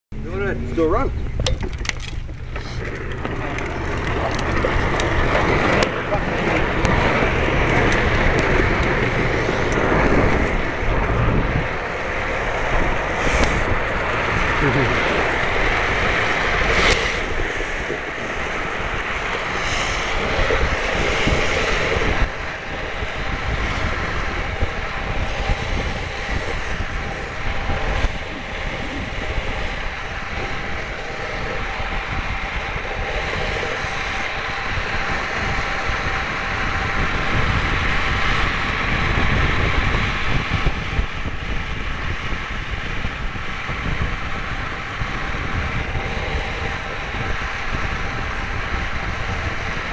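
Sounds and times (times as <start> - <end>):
wheels rumbling on asphalt: 0.0 - 49.9
wind buffeting microphone: 0.1 - 49.9.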